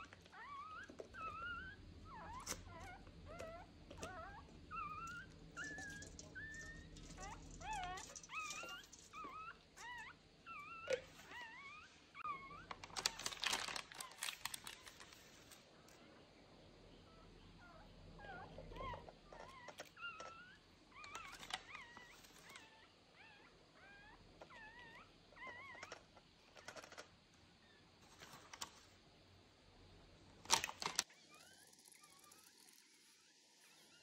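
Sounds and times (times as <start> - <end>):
puppy whimpering: 0.0 - 15.1, 17.1 - 27.1.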